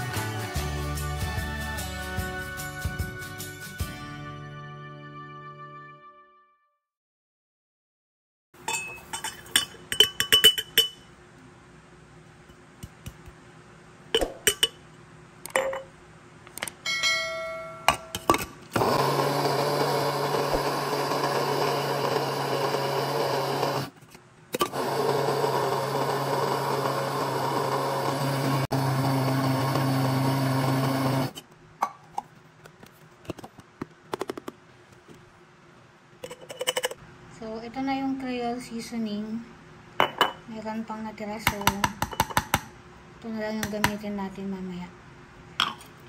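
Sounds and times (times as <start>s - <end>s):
spice grinder motor running: 18.7s - 23.9s, 24.6s - 31.4s
clinks and knocks of spices and lid: 41.5s - 42.7s.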